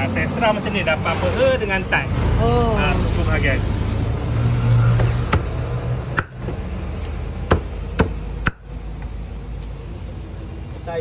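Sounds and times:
cleaver chopping on wooden block: 5.0 - 6.6, 7.4 - 8.7.

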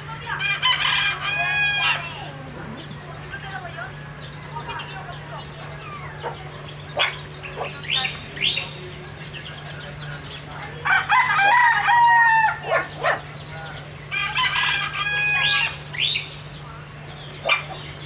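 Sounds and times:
rooster crowing: 0.3 - 2.9, 10.8 - 13.2, 14.1 - 15.9.

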